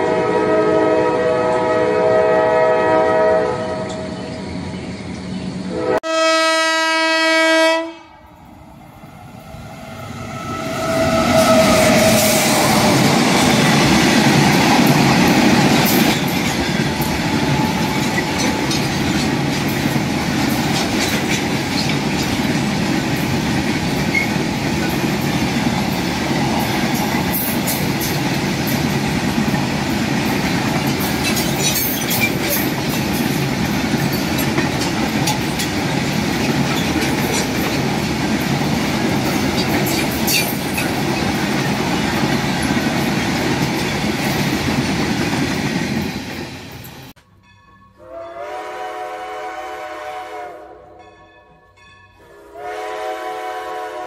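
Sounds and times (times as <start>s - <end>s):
train horn: 0.0s - 4.2s, 5.7s - 8.3s, 9.8s - 13.8s, 48.0s - 51.2s, 52.2s - 54.0s
wagon wheels clickety-clack: 13.3s - 46.4s.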